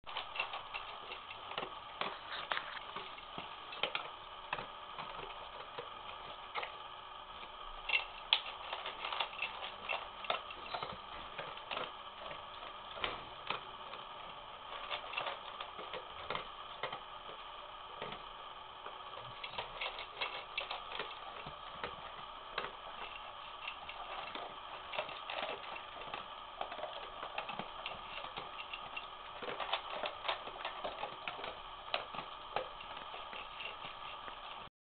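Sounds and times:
dog crunching dry kibble: 0.1s - 34.7s.

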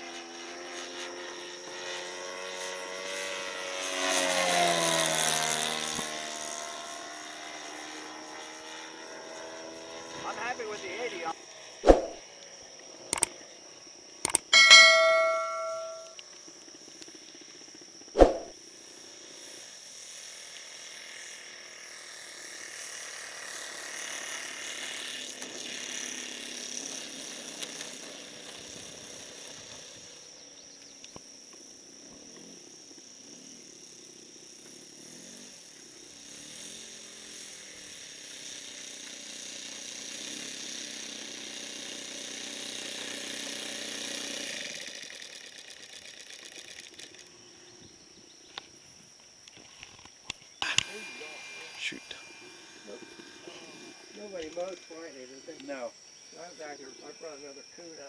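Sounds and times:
model plane engine running: 0.0s - 11.8s, 18.6s - 48.7s, 49.4s - 58.0s
sharp click: 11.8s - 12.2s, 13.1s - 13.3s, 14.3s - 16.1s, 18.2s - 18.5s.

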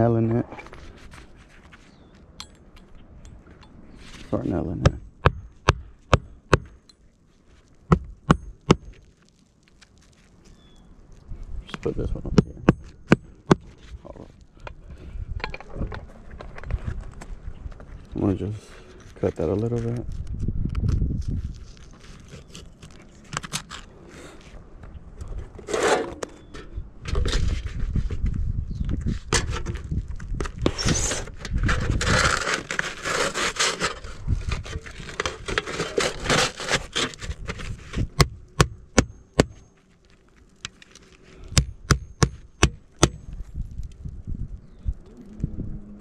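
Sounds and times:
utility knife cutting shingles: 30.5s - 39.6s
flashing sliding and scraping: 30.6s - 38.1s.

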